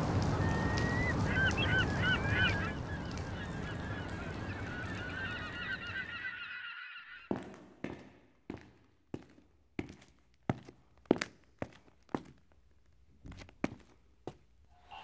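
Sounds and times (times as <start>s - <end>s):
gulls calling: 0.0s - 7.3s
footsteps on hard floor: 7.3s - 12.4s, 13.2s - 14.5s.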